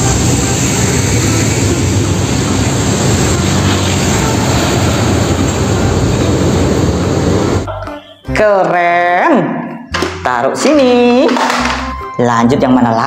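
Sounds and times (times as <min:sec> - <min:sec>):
heavy vehicle engine rumble: 0:00.0 - 0:07.7.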